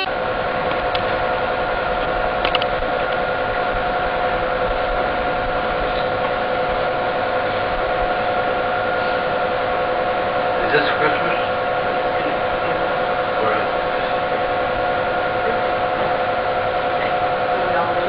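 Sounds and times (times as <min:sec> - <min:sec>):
even whine: 0:00.0 - 0:18.0.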